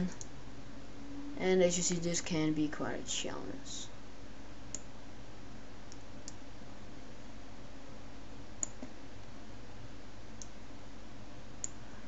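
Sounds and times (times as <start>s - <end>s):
computer mouse clicks: 4.7s - 4.9s, 8.6s - 9.0s, 11.6s - 11.8s.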